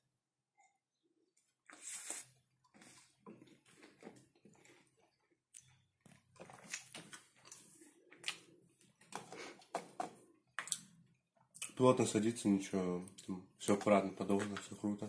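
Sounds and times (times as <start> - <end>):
close-up chewing: 1.6 - 9.7
slurping sip from cup: 1.7 - 3.2.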